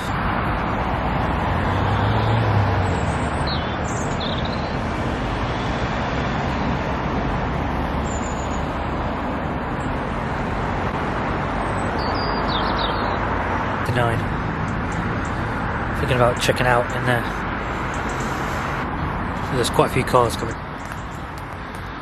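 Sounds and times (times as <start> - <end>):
road traffic: 0.0 - 22.0
small birds chirping: 1.9 - 4.8, 11.6 - 13.3, 13.9 - 18.7.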